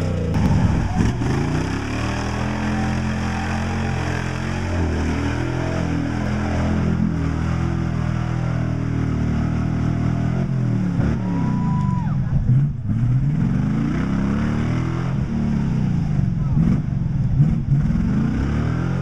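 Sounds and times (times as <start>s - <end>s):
tyres churning mud: 0.0s - 8.6s
pickup engine revving: 0.0s - 19.0s.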